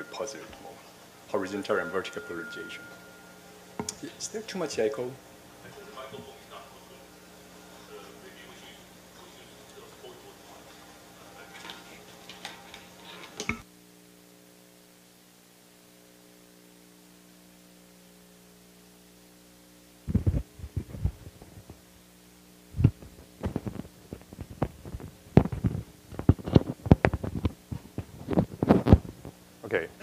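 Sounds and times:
electrical mains hum: 0.0 - 30.0
microphone handling thumps: 20.1 - 21.8, 22.7 - 29.4.

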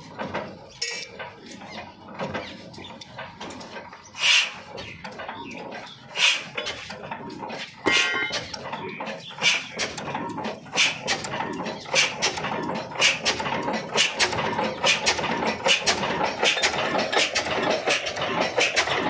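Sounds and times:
slow diesel engine beating: 0.0 - 19.0.

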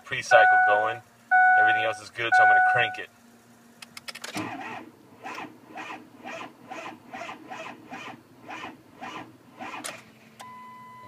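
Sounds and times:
diesel engine cranking slowly: 0.0 - 10.6
starter click: 3.8 - 4.5.

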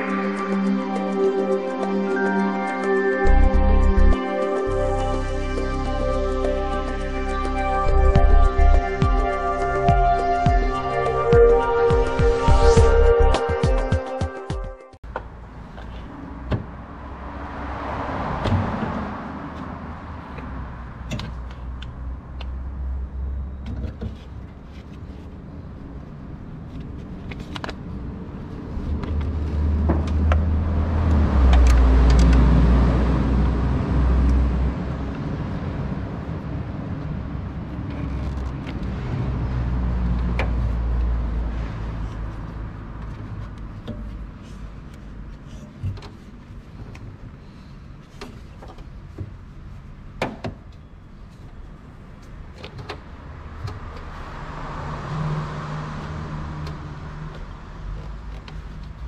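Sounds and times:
low rumble: 3.3 - 13.4.

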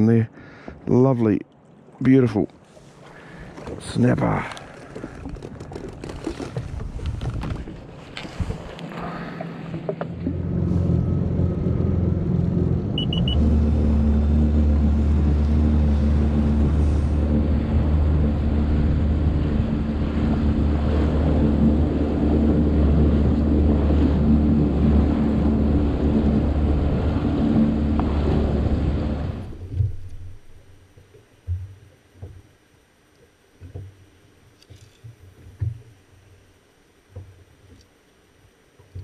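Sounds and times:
jet ski engine running: 2.6 - 39.0
hull and spray noise: 6.1 - 30.7
quick beeps: 13.0 - 13.4.

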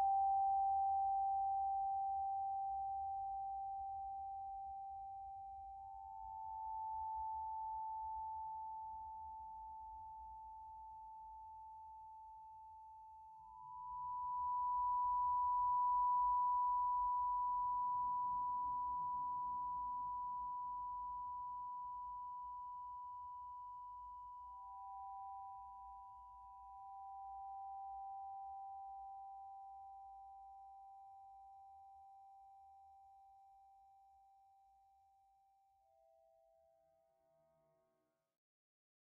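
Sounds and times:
steady sine tones drone: 13.4 - 30.3.

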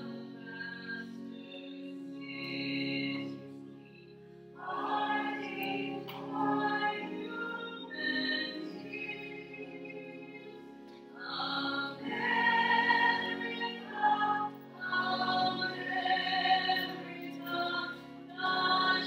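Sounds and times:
sacred singing: 0.0 - 19.0
steady held accompaniment: 0.0 - 19.0.

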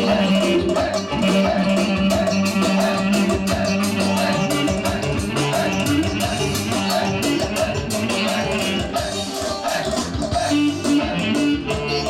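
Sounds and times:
clarinet playing melody: 0.0 - 9.4, 10.4 - 12.0
fast drum beat: 0.0 - 12.0.

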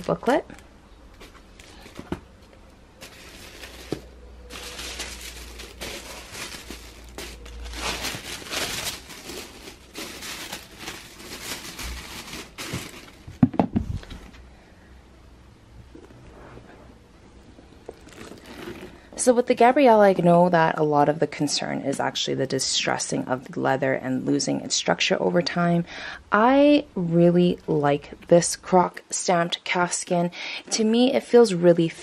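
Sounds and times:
tissue paper rustling and crinkling: 3.0 - 13.4.

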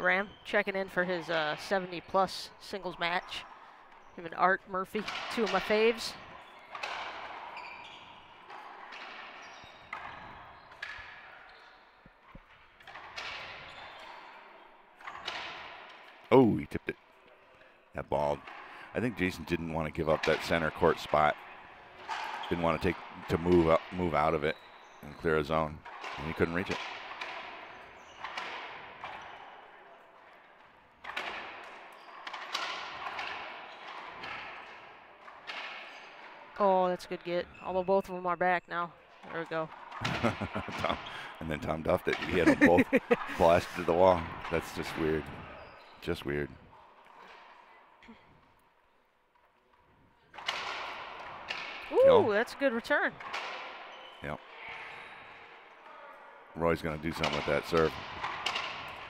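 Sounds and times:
racquetball hits echoing: 5.0 - 16.2, 25.8 - 36.6, 50.3 - 55.6, 57.2 - 59.0.

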